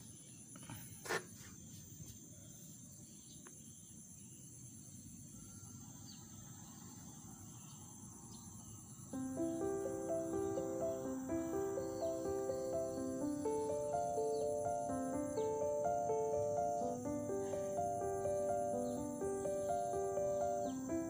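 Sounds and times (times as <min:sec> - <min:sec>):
insects chirring: 0:00.0 - 0:21.0
plucked piano-like music: 0:09.2 - 0:21.0.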